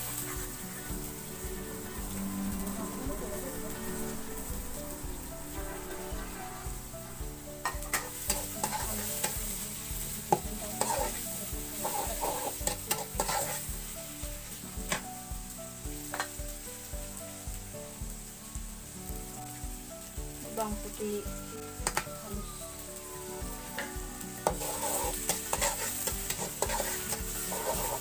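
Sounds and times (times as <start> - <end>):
onions sizzling in oil: 0.0 - 28.0
metal spatula scraping a pan: 5.5 - 13.7, 23.8 - 28.0.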